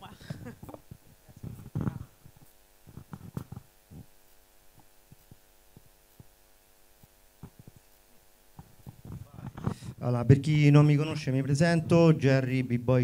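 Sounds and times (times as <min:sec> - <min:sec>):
microphone handling thumps: 0:00.0 - 0:06.3, 0:07.0 - 0:07.9, 0:08.5 - 0:10.0
electrical hum: 0:00.0 - 0:13.0.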